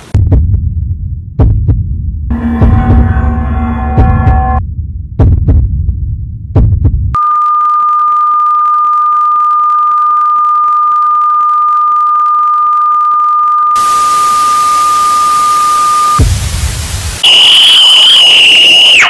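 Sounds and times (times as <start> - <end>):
low heartbeat-like thump: 0.1 - 7.2, 16.2 - 16.7
tv static hiss: 13.8 - 19.0
high electronic beep tone: 14.9 - 16.3.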